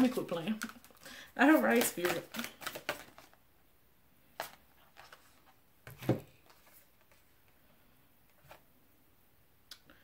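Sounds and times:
cards ticking and tapping: 0:01.6 - 0:03.3.

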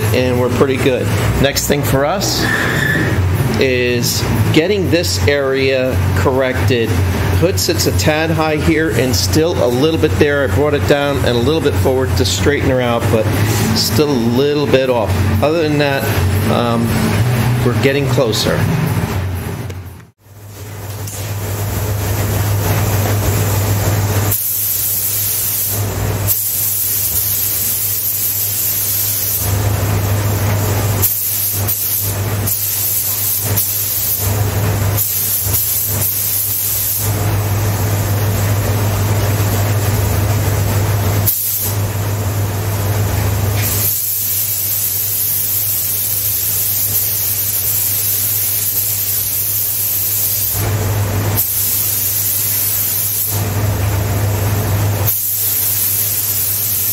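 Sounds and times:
exhaust fan hum: 0:00.0 - 0:56.9
spray gun hissing: 0:24.2 - 0:38.1, 0:41.2 - 0:41.9, 0:43.6 - 0:50.6, 0:51.4 - 0:53.5, 0:55.0 - 0:56.9.

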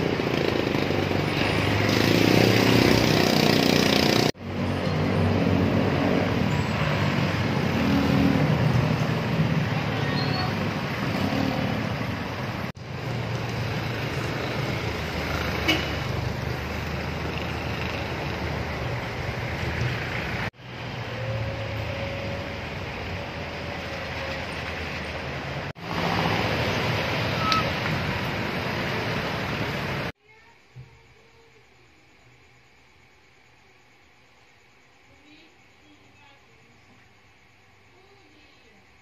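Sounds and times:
roadway rumble: 0:00.0 - 0:30.2
vehicles passing: 0:00.0 - 0:30.2.

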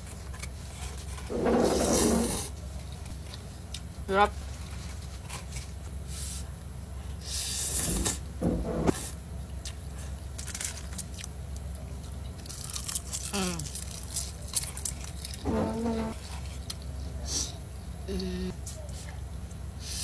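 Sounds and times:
chewing: 0:09.6 - 0:17.2
person murmuring: 0:18.1 - 0:18.6.

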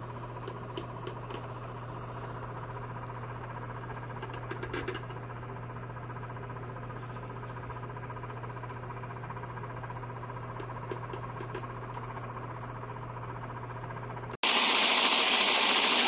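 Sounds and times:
electric motor humming: 0:14.4 - 0:16.0.

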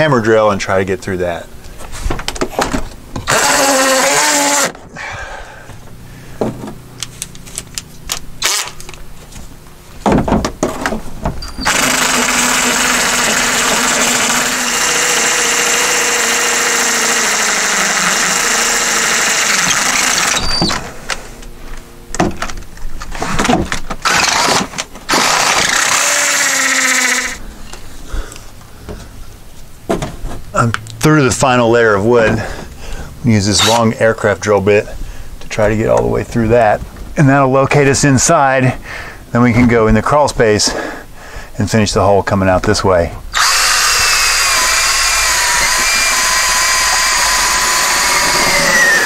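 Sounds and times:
hammer drill boring into brick: 0:03.2 - 0:04.8, 0:08.4 - 0:08.8, 0:11.4 - 0:20.8, 0:24.0 - 0:27.4, 0:33.6 - 0:34.0, 0:43.4 - 0:49.0.

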